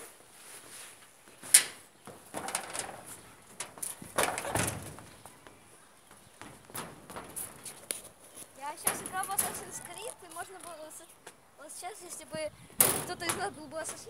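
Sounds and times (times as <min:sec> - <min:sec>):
scuffs and knocks on metal roof: 0:01.4 - 0:07.8, 0:08.7 - 0:10.0, 0:12.8 - 0:14.0.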